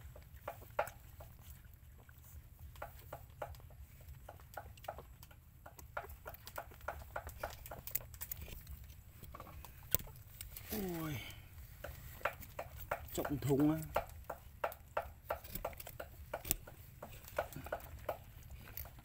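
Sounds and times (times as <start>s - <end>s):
puppies suckling wet smacking: 0.0s - 19.0s.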